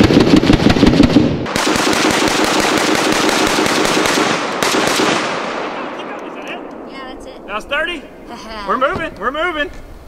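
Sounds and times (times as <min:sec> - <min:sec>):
rapid rifle shots: 0:00.0 - 0:06.1.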